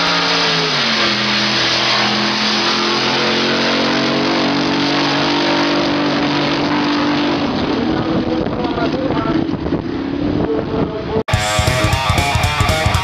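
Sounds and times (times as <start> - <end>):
loud car engine running: 0.0 - 10.6, 11.3 - 13.0.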